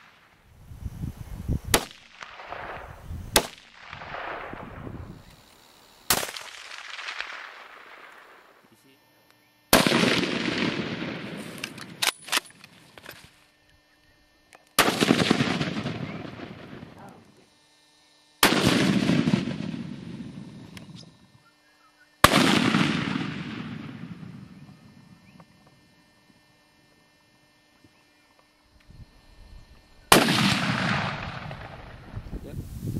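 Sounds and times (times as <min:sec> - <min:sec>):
rifle shots with rolling echo: 0:01.7 - 0:05.0, 0:06.1 - 0:08.6, 0:09.7 - 0:12.8, 0:14.8 - 0:17.0, 0:18.4 - 0:21.0, 0:22.2 - 0:25.0, 0:30.1 - 0:32.2.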